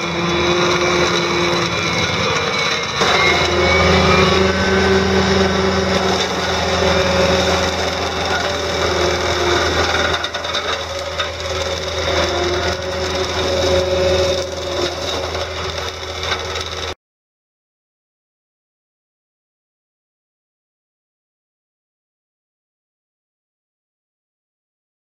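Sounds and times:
diesel engine hum: 0.0s - 17.0s
mower head chewing brush: 0.0s - 17.0s.

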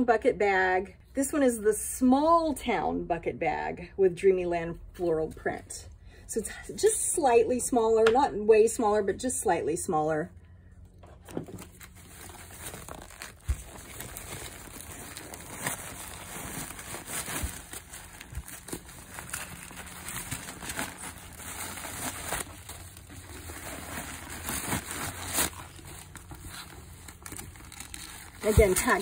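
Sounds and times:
tissue paper and plastic crinkling: 11.2s - 29.0s.

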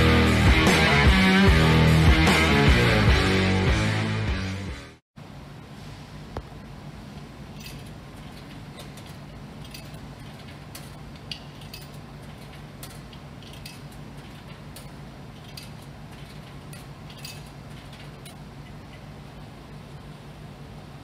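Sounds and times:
vending machine humming: 5.2s - 21.0s.

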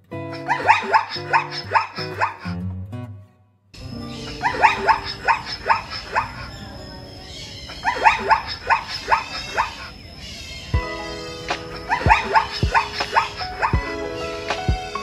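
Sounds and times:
animal yapping: 0.3s - 2.5s, 4.0s - 15.0s
background music: 10.8s - 15.0s.

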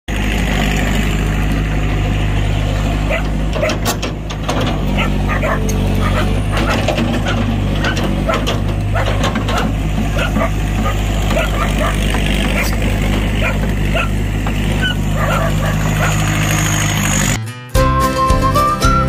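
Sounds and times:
diesel engine running: 0.1s - 19.0s
sharp knocks and clicks: 3.2s - 13.8s.

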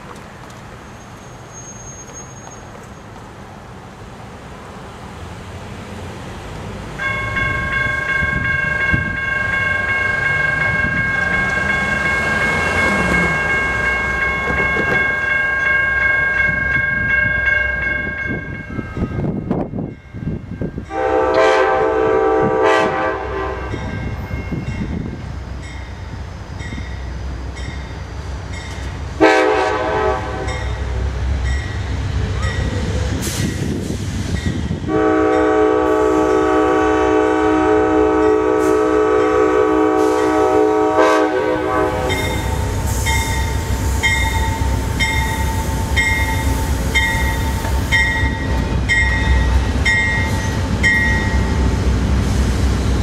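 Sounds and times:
train rumble: 0.0s - 53.0s
crossing warning bell dinging: 7.0s - 33.6s, 34.3s - 51.8s
locomotive horn blasts: 20.8s - 24.0s, 29.2s - 30.9s, 34.9s - 42.7s.

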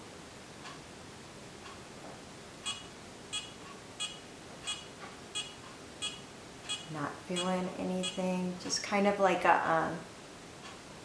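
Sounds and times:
short high beeps: 2.7s - 8.2s.

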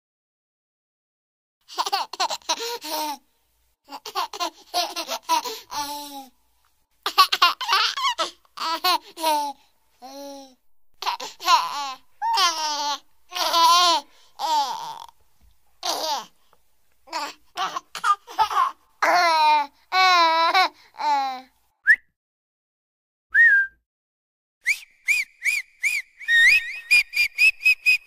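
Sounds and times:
baby laughing: 1.7s - 3.2s, 3.8s - 6.3s, 7.0s - 10.4s, 11.0s - 15.2s, 15.8s - 16.4s, 17.1s - 21.4s.

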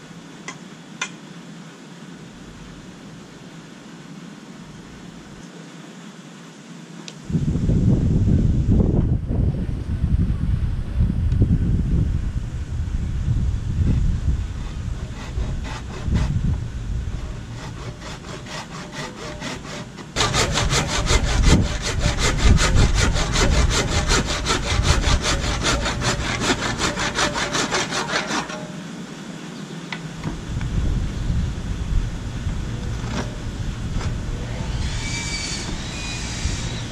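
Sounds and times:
handsaw cutting wood: 14.5s - 28.8s, 34.0s - 36.9s.

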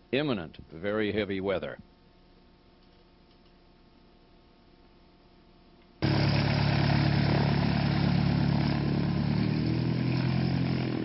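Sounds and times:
faint low hum: 0.0s - 6.6s
light aircraft engine and propeller: 6.0s - 11.0s.

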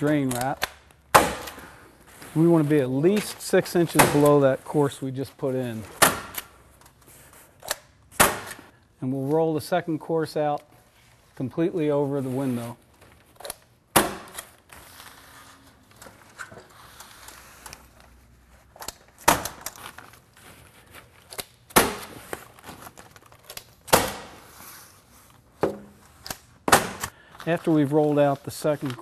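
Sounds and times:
sheet rustling: 1.7s - 5.9s.

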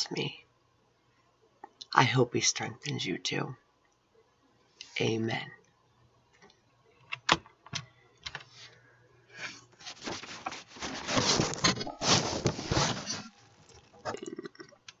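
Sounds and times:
microphone handling rustling: 9.8s - 14.2s.

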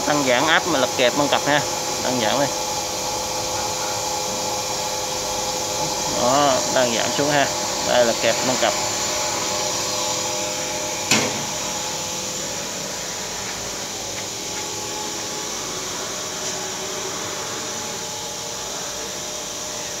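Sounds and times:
machine hum with hiss: 0.0s - 20.0s
sharp knock: 11.1s - 11.5s.

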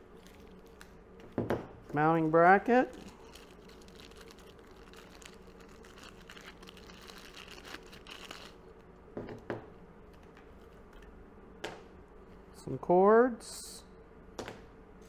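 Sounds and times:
plastic packaging crinkling: 0.0s - 1.0s, 2.2s - 8.7s.

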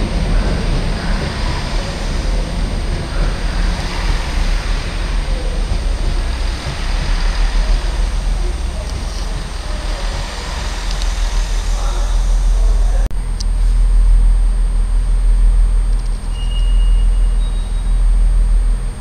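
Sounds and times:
diesel train running past: 0.0s - 13.1s
heavy low rumble: 0.0s - 19.0s.

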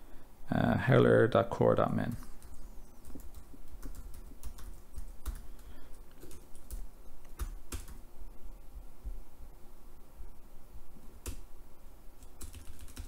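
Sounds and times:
computer keyboard typing: 2.1s - 8.0s, 12.2s - 13.0s.

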